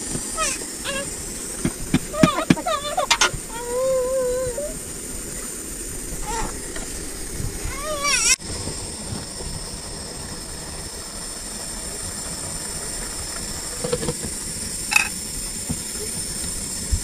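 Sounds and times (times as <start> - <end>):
steam hissing from boiling pot: 0.0 - 17.0
metal pot lid clattering: 1.6 - 3.4.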